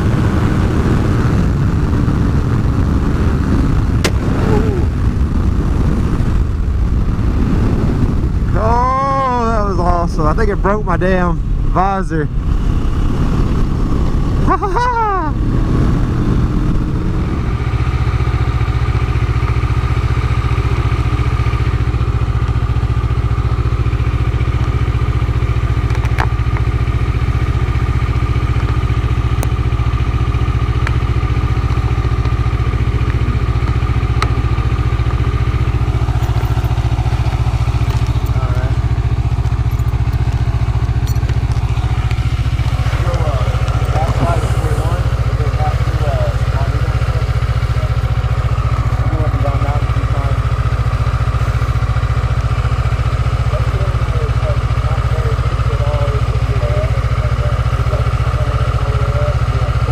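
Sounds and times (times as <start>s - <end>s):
wind rush on microphone: 0.0s - 18.7s, 30.5s - 46.7s
motorcycle engine cruising: 0.0s - 59.9s.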